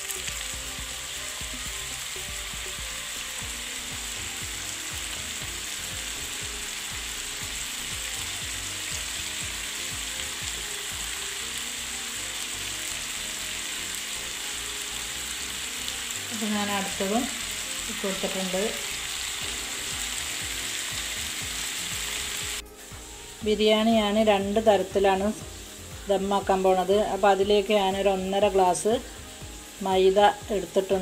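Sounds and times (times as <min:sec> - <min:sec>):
chicken sizzling in oil: 0:00.0 - 0:31.0.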